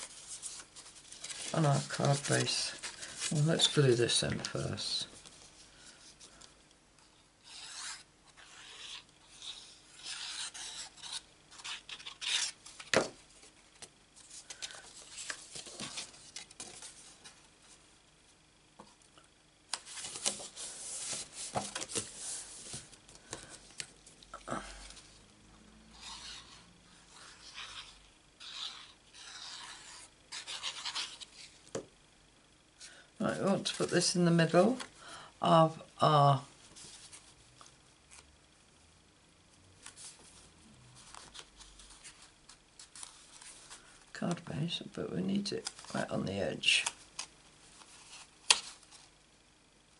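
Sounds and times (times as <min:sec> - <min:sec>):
cardstock scraping rustles: 0:00.0 - 0:04.7.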